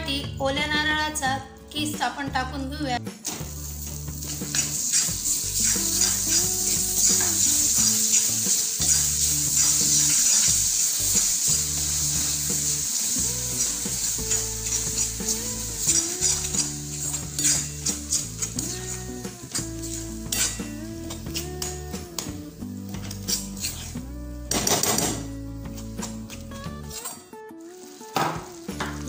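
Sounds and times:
soft background music: 0.0s - 29.0s
melted sugar sizzling: 3.4s - 29.0s
spatula scraping a pan: 4.3s - 21.8s, 22.9s - 24.0s, 25.7s - 27.3s.

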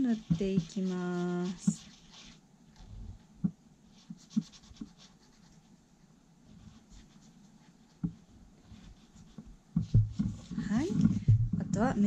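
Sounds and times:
marker scratching on paper: 0.0s - 2.4s, 3.9s - 5.7s, 6.5s - 11.2s.

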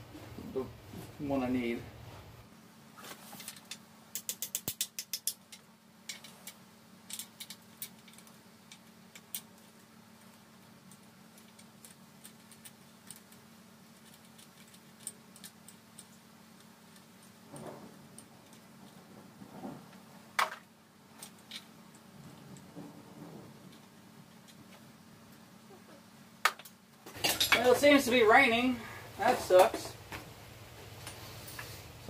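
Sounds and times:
faint steady hum: 0.0s - 32.0s
ratchet wrench clicking: 4.2s - 8.3s.

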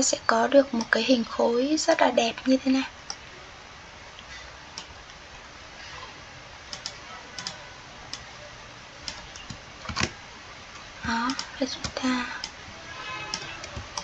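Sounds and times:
steady low hiss: 0.0s - 14.0s
mouse and keyboard clicks: 13.3s - 14.0s.

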